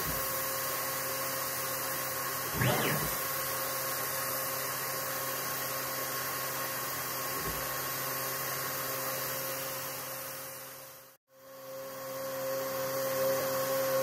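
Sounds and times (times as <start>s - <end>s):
laser engraver whirring hiss: 2.4s - 3.2s.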